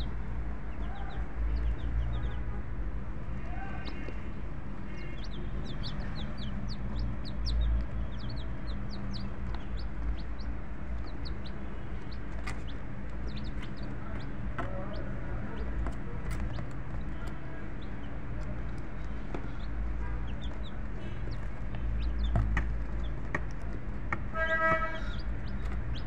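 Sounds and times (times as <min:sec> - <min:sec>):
chicks peeping: 0:00.0 - 0:26.0.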